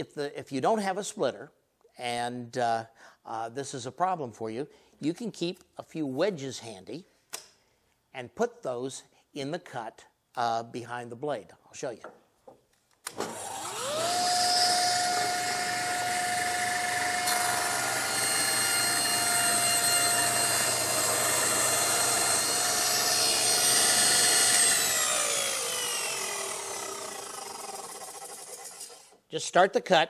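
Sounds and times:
saw blade ripping a board: 13.1s - 29.2s
table saw motor whine: 13.1s - 29.2s.

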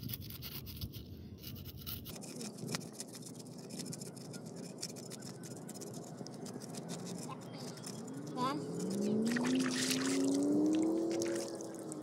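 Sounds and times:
knife scraping fish scales: 0.0s - 9.0s.

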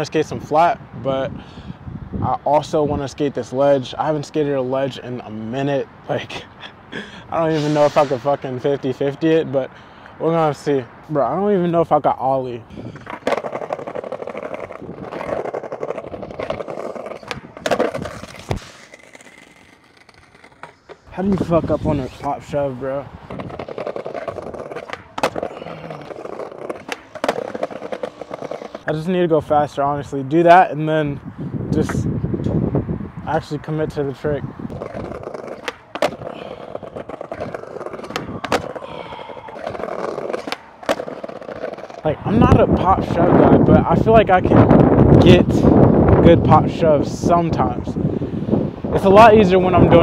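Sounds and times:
skateboard wheels rolling on bricks: 7.4s - 9.4s, 12.9s - 29.7s, 33.9s - 45.6s
skateboard set down on bricks: 13.0s - 21.5s, 23.3s - 28.8s, 34.8s - 38.8s.

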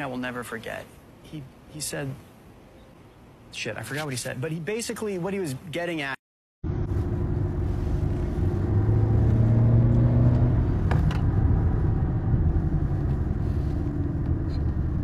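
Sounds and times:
car engine and road noise: 6.6s - 15.0s.

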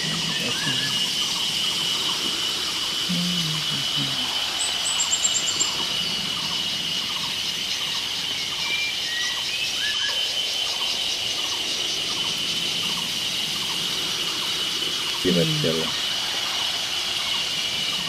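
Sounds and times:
birds calling: 0.0s - 18.0s
high insect drone: 0.0s - 18.0s
high bird chirps: 4.6s - 6.2s.

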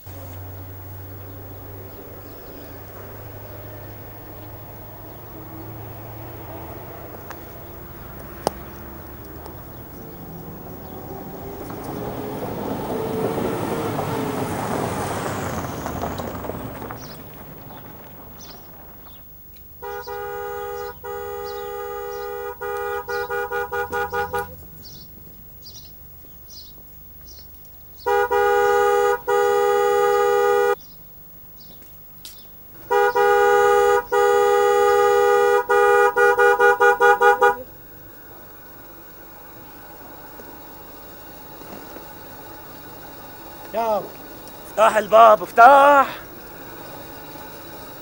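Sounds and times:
two-tone car horn honking: 19.7s - 25.8s, 28.0s - 30.8s, 32.8s - 38.0s
faint bird chirps: 24.3s - 28.1s.

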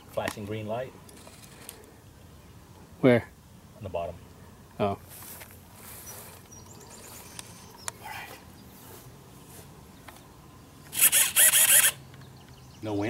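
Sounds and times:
faint rustling: 5.0s - 10.3s
faint high chirps: 5.9s - 8.6s.

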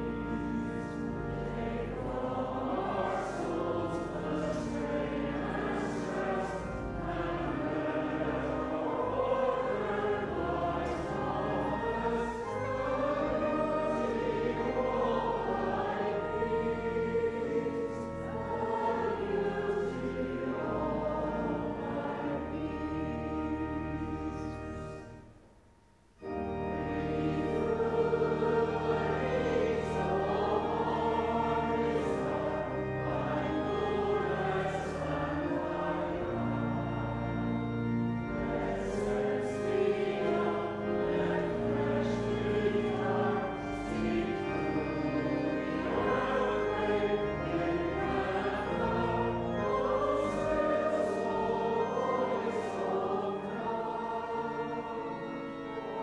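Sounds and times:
choir singing a hymn: 0.0s - 25.1s, 26.2s - 56.0s
instrumental accompaniment: 26.2s - 56.0s.

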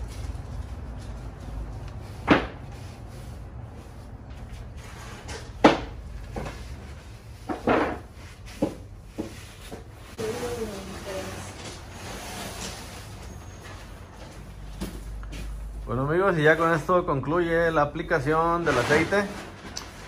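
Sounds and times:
pad wiping wooden boards: 2.0s - 5.1s.

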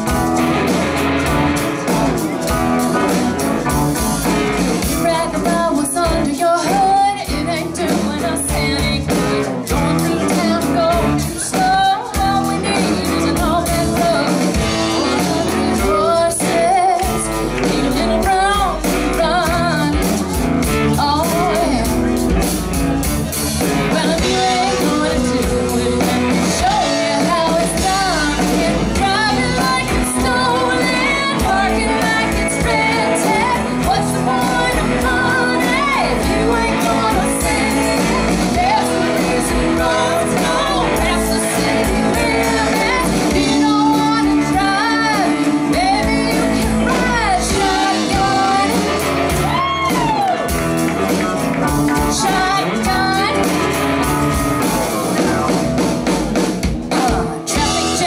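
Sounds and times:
woman singing lead: 0.0s - 22.6s, 23.3s - 55.6s, 56.4s - 58.0s
bass guitar: 0.0s - 58.0s
drums: 0.0s - 58.0s
woman singing backing vocals: 4.8s - 20.2s, 23.9s - 50.4s, 52.0s - 53.6s, 56.9s - 58.0s.

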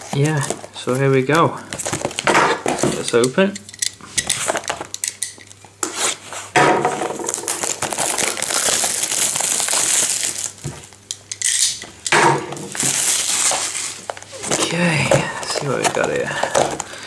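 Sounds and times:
plastic crinkling: 0.0s - 3.1s, 7.1s - 11.7s, 12.7s - 17.0s
plastic wrap being torn: 7.2s - 11.8s, 12.7s - 16.9s.

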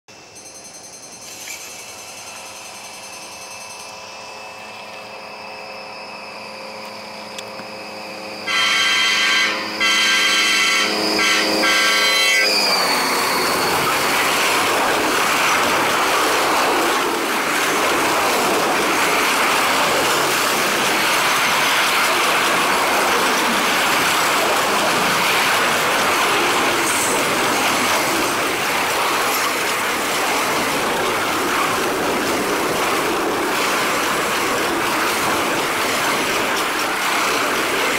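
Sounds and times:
train cars rushing by: 0.1s - 37.9s
locomotive horn blasts: 8.4s - 12.7s.

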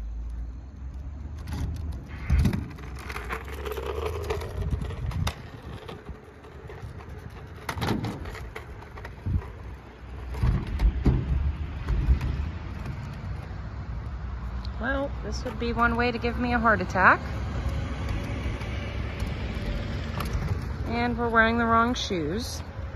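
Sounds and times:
scooter wheels rolling on asphalt: 0.0s - 22.9s
scooter wheels knocking on ramp edges: 1.5s - 13.6s.

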